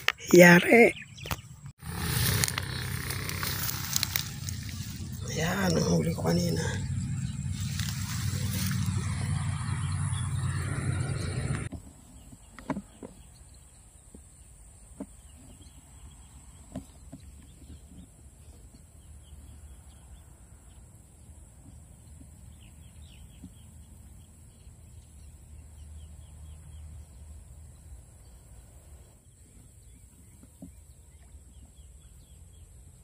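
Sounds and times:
distant chickens calling: 0.0s - 11.7s.

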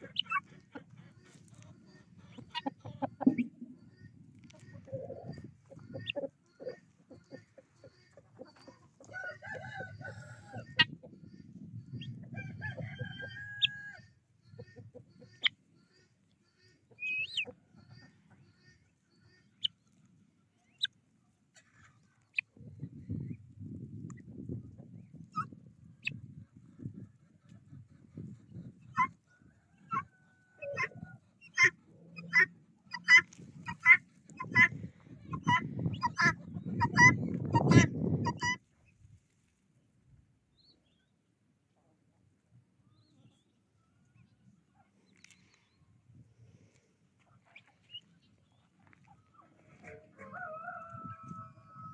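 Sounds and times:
chicken calls and clucks: 0.0s - 39.6s, 41.7s - 51.9s
rooster crowing: 9.1s - 10.7s, 12.4s - 14.1s, 50.1s - 51.9s.

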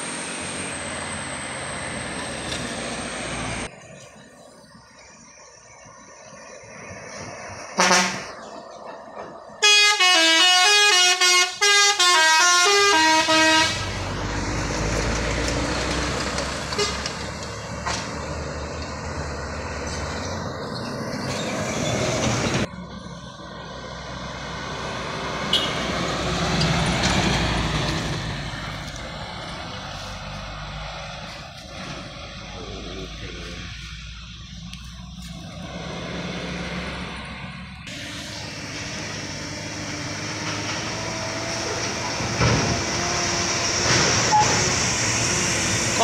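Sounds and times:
bus engine passing: 0.0s - 46.0s
heavy truck engines: 0.0s - 46.0s
musical bus horn: 7.7s - 8.5s, 9.6s - 14.0s, 16.7s - 17.2s, 25.5s - 25.9s.

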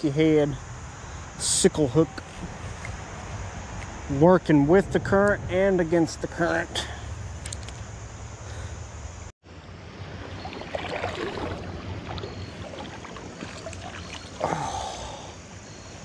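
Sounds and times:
wind on microphone: 2.2s - 7.6s
creek water flowing: 9.7s - 15.7s.

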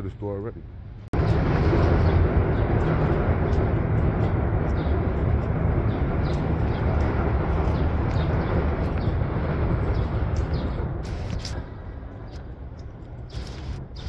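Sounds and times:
low city rumble: 0.0s - 14.0s.

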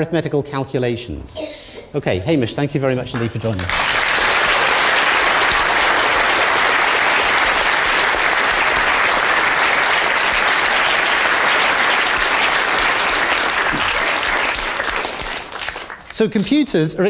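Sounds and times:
audience applauding: 3.1s - 16.5s.

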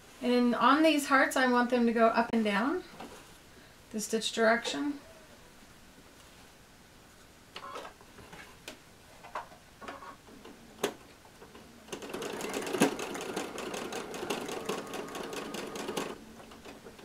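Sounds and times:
sewing machine clicks: 11.9s - 16.8s
sewing machine stitching: 11.9s - 16.8s.

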